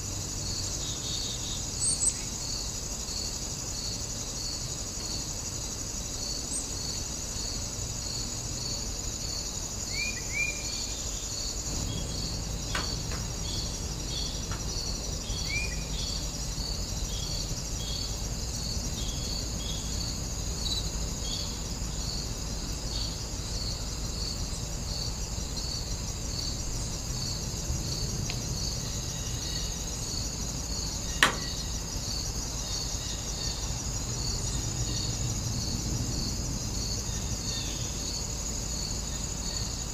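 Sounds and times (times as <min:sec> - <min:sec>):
crickets and insects trilling: 0:00.0 - 0:39.9
sharp click: 0:31.2 - 0:31.6.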